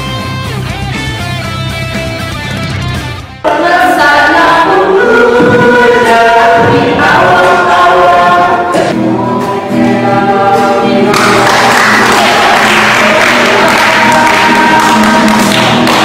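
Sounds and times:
choir singing sustained notes: 3.4s - 16.0s.

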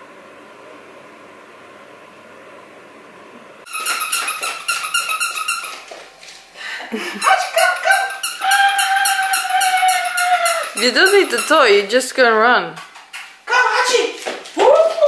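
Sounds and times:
puppy crying and whining: 3.7s - 5.9s, 7.2s - 11.8s
puppy yapping: 3.7s - 5.9s, 7.2s - 11.8s.

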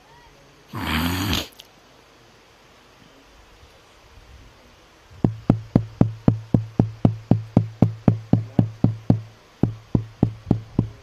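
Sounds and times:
low electrical hum: 0.0s - 11.0s
microphone being tapped: 5.2s - 11.0s.

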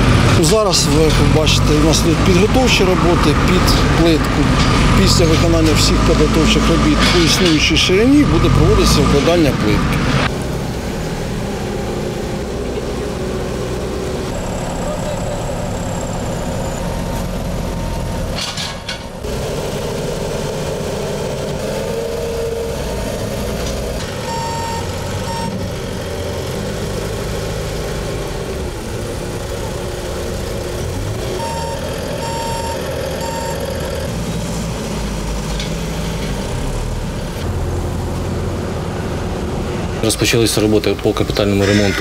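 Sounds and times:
heavy machinery diesel engines: 0.0s - 42.0s
reversing alarm beeps: 24.2s - 25.6s, 31.4s - 34.1s.

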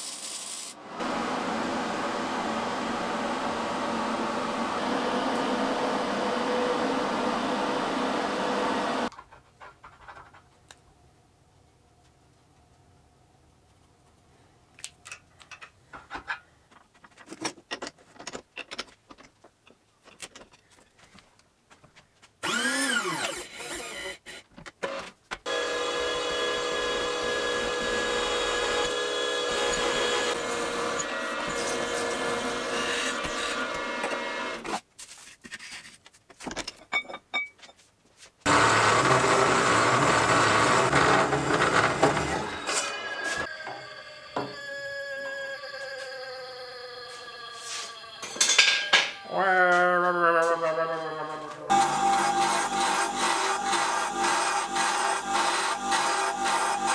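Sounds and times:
steel parts clicking and knocking: 14.8s - 20.8s
chop saw cutting steel: 22.4s - 24.2s, 25.5s - 34.7s, 38.5s - 43.8s, 51.7s - 56.9s
drill press drilling steel: 22.4s - 24.3s, 25.5s - 34.6s, 38.5s - 45.2s, 51.7s - 56.9s
brief rising and falling whine: 38.5s - 48.3s.

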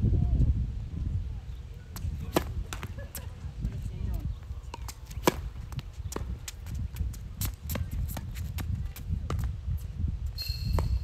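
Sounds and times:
tennis ball bounces: 2.0s - 3.3s, 4.6s - 6.8s.

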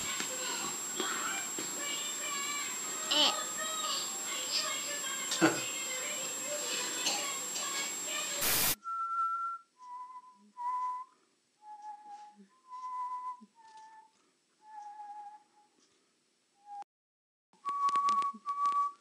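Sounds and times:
loud burst of noise: 8.4s - 8.8s
person whistling short notes: 8.8s - 15.7s, 17.6s - 19.0s.

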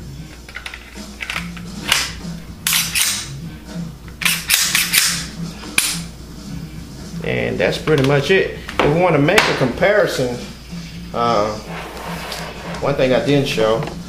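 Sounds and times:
pistol slide clicks and snaps: 0.5s - 3.3s, 4.1s - 6.1s.

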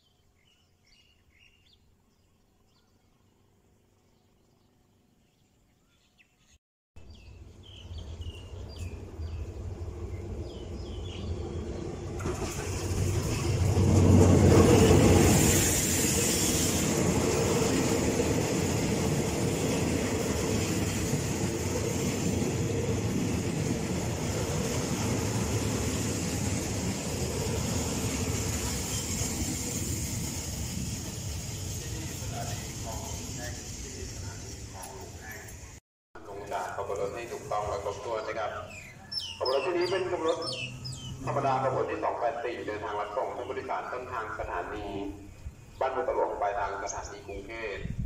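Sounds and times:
bird chirps: 0.0s - 11.8s, 37.0s - 41.6s, 42.9s - 47.4s
diesel locomotive rumble: 7.2s - 48.0s
train wheels rolling: 7.8s - 38.9s.

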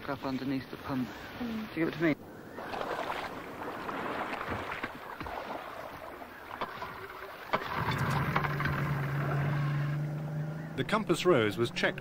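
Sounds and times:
water splashing around boat: 1.7s - 12.0s
outboard motor running: 6.6s - 12.0s.

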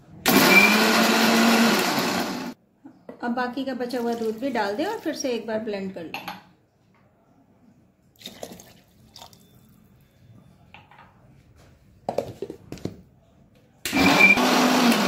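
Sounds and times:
mixer grinder motor whirring: 0.3s - 2.6s, 13.9s - 15.0s.

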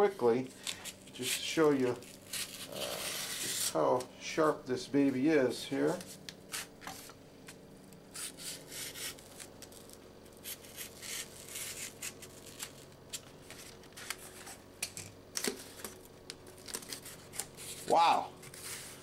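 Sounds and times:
faint steady hum: 0.0s - 19.0s
knife cutting cardboard: 0.7s - 3.8s, 8.1s - 14.6s.

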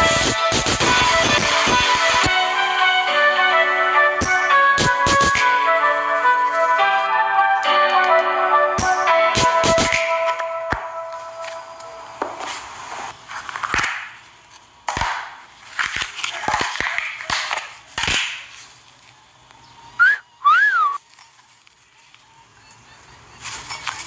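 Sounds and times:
whistle-like squeaks: 19.8s - 21.0s.

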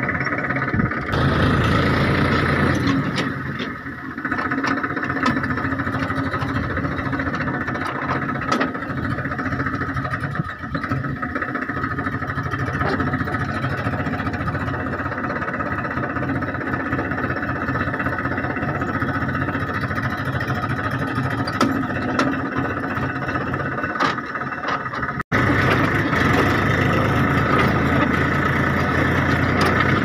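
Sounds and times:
tractor engine running: 0.0s - 30.0s.

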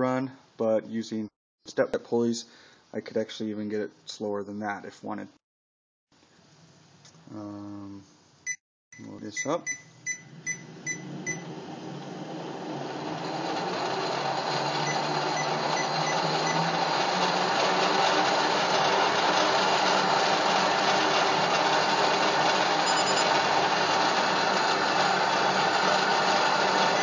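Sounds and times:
wood lathe motor running: 10.7s - 27.0s.

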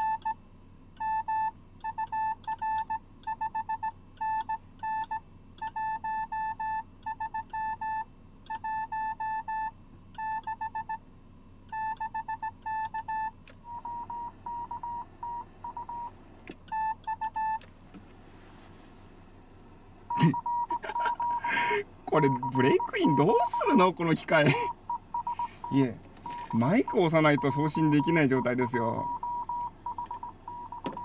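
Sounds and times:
morse code beeps: 0.0s - 0.4s, 1.0s - 11.0s, 11.7s - 16.1s, 16.7s - 17.6s, 20.1s - 31.0s
clicks: 16.4s - 18.0s, 26.0s - 26.6s
fainter rougher morse tone: 20.1s - 31.0s.

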